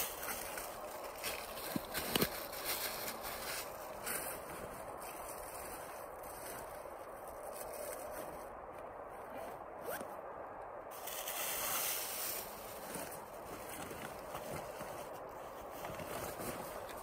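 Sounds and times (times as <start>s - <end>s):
clothing rustling: 12.4s - 17.0s.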